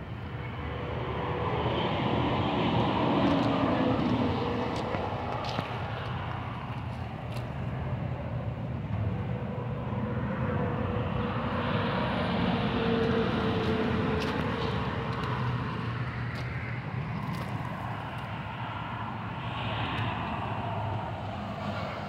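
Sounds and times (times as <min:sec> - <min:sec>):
distant engine drone: 0:00.0 - 0:22.0.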